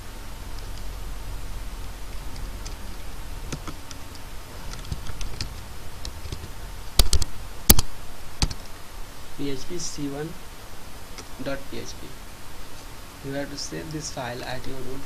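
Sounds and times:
low steady hum: 0.0 - 15.0
keyboard keystrokes: 3.5 - 7.8, 8.4 - 8.6.

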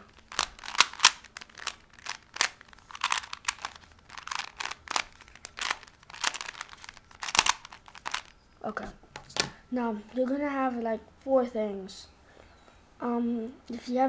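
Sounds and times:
puzzle cube layers clicking: 0.2 - 8.3.

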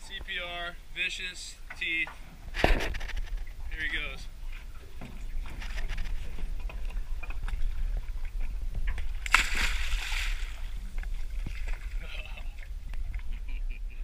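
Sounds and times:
steady low rumble: 6.2 - 14.0
fish splashing into the sea: 9.2 - 10.9.

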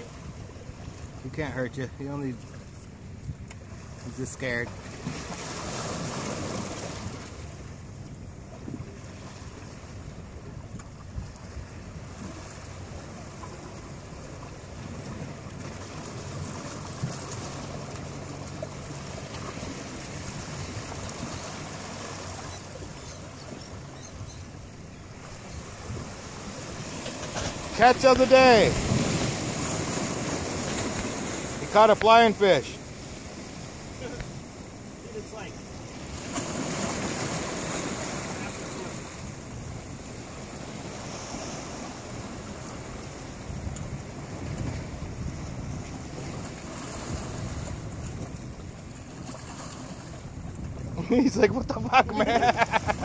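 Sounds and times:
surf splashing on rocks: 3.6 - 7.6, 25.1 - 45.0, 49.0 - 53.0
wind on microphone: 40.6 - 53.0.

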